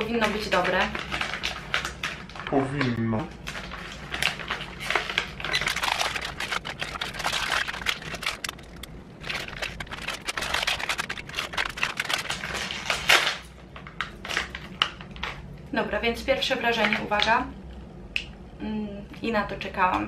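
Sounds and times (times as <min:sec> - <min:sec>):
plastic snack packet crinkling: 0:00.2 - 0:15.4.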